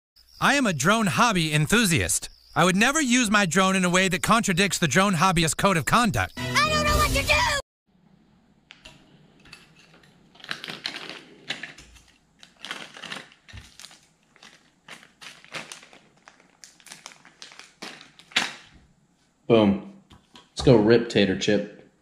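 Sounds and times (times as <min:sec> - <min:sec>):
plastic bag crinkling: 0:10.2 - 0:18.7.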